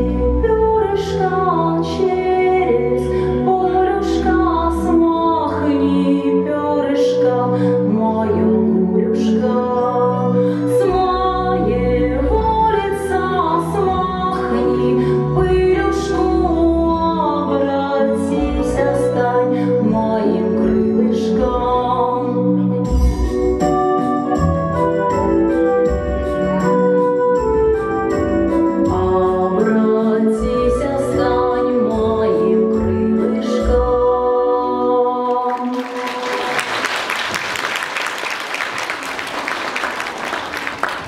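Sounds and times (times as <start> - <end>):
song with organ-like chords: 20.7 - 35.0
audience applause: 35.5 - 41.0.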